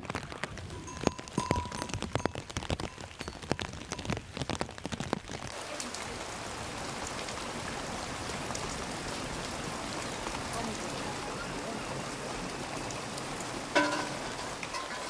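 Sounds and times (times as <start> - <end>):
hooves clicking on stony trail: 0.0 - 5.1
rain hissing: 0.0 - 15.0.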